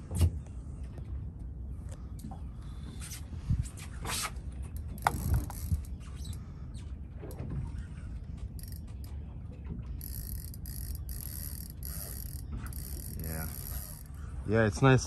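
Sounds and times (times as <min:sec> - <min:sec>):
fishing reel buzzing: 0:05.0 - 0:06.0, 0:08.6 - 0:08.8, 0:10.0 - 0:14.2.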